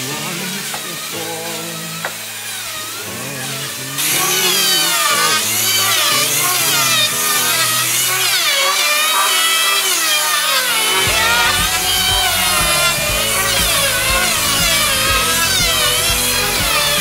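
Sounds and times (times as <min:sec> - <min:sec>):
electric hand planer running: 0:00.0 - 0:17.0
background music: 0:11.0 - 0:17.0.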